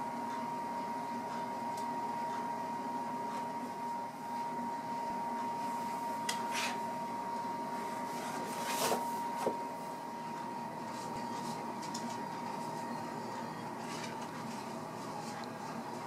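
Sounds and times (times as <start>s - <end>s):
indoor room hum with faint whine: 0.0s - 16.0s.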